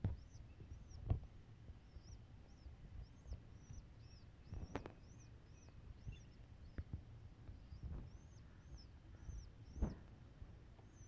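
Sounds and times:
soft knocks and bumps: 0:09.8 - 0:10.1.

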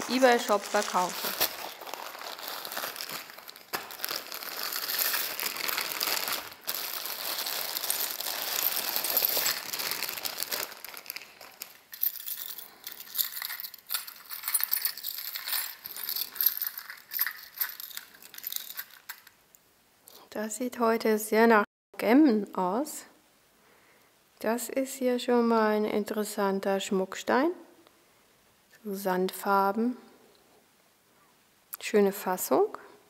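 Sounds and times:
jewelry pieces clinking: 0:01.0 - 0:19.4
metal jewelry jingling: 0:07.2 - 0:19.4.

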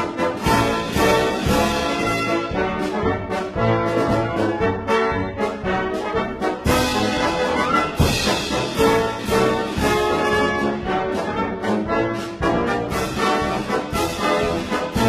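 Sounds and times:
brass band playing: 0:00.0 - 0:15.0.

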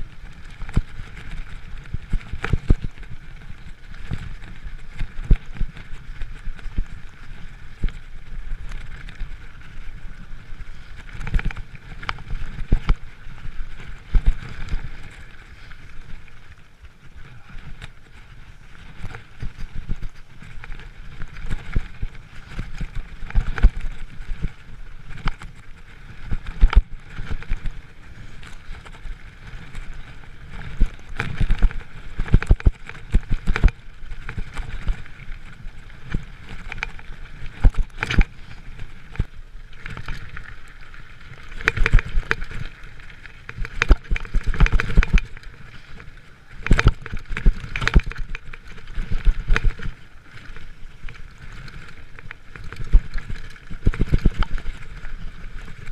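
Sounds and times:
bike knocking and rattling: 0:00.0 - 0:55.9
bike tyres rumbling over dirt: 0:00.0 - 0:55.9.

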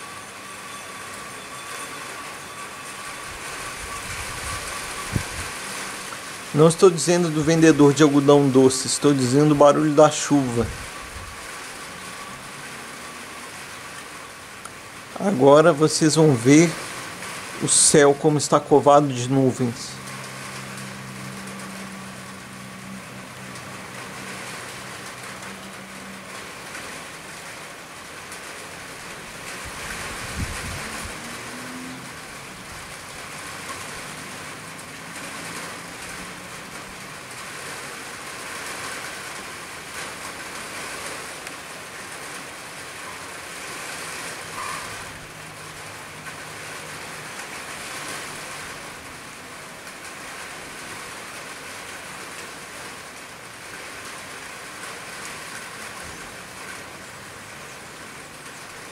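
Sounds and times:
rain on roofs and pavement: 0:00.0 - 0:58.9
vehicle passing: 0:15.2 - 0:27.7, 0:29.2 - 0:41.4.

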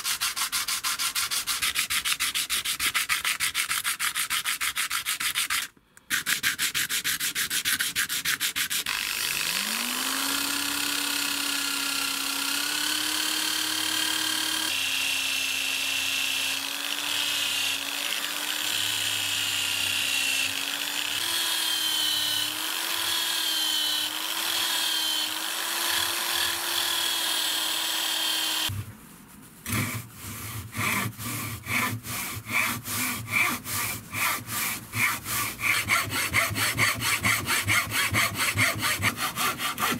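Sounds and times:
steel blade on sandpaper: 0:00.0 - 0:09.0, 0:29.7 - 0:39.9
hacksaw cutting wood: 0:00.0 - 0:28.7, 0:29.7 - 0:39.9
electric rotary tool grinding: 0:08.9 - 0:28.7.

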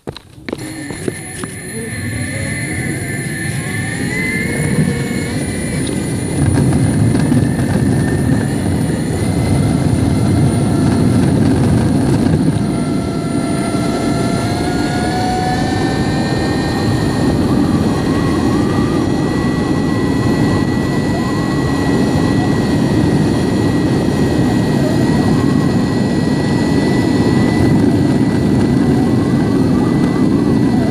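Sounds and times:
electric motor whine: 0:00.1 - 0:30.9
wheels rumbling on asphalt: 0:03.9 - 0:16.2.

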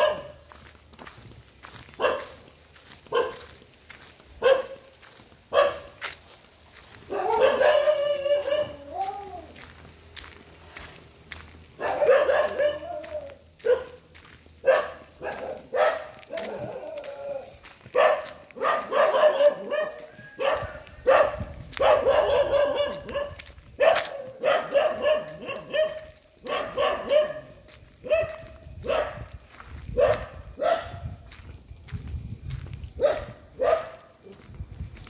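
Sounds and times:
dog barking: 0:00.0 - 0:00.5, 0:01.9 - 0:03.6, 0:04.4 - 0:04.9, 0:05.5 - 0:06.0, 0:07.0 - 0:09.5, 0:11.8 - 0:29.3, 0:29.9 - 0:31.2, 0:33.0 - 0:34.4.

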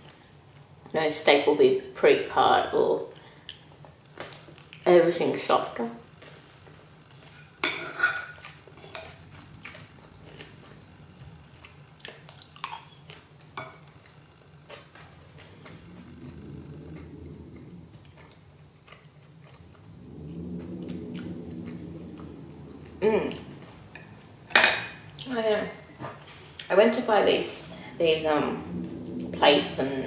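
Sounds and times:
low hum: 0:06.0 - 0:30.0
chewing food: 0:08.3 - 0:19.9.

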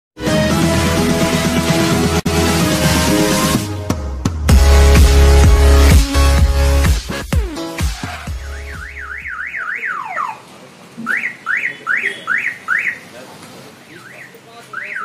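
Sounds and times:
electronic music: 0:00.2 - 0:10.4
car alarm siren: 0:08.1 - 0:13.1, 0:14.0 - 0:15.0.

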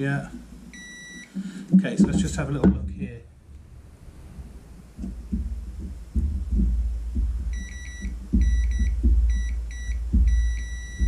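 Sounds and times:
low thumps and rumble: 0:00.0 - 0:11.0
multimeter continuity beeps: 0:00.7 - 0:01.8, 0:07.5 - 0:11.0.

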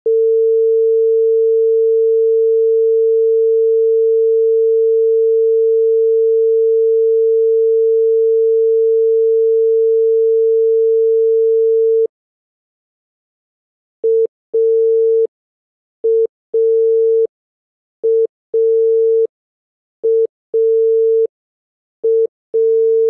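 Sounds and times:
telephone dial tone: 0:00.1 - 0:12.1, 0:14.0 - 0:15.3, 0:16.0 - 0:17.3, 0:18.0 - 0:19.3, 0:20.0 - 0:21.3, 0:22.0 - 0:23.0.

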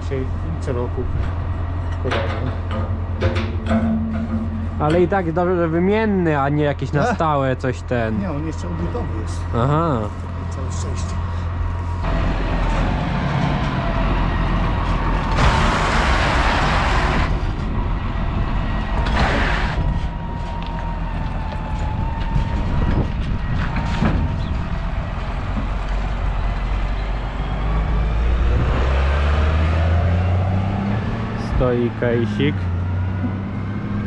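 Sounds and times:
tractor engine rumbling: 0:00.0 - 0:34.0.

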